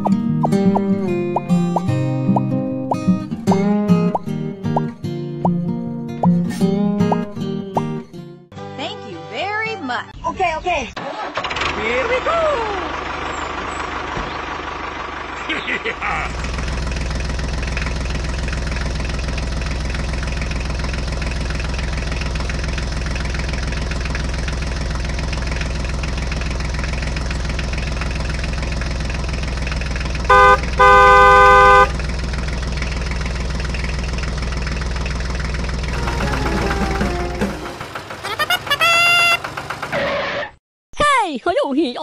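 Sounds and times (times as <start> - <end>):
vehicle engine running: 0.0 - 5.6, 11.3 - 40.1
horn honking: 30.3 - 32.1, 35.9 - 40.2.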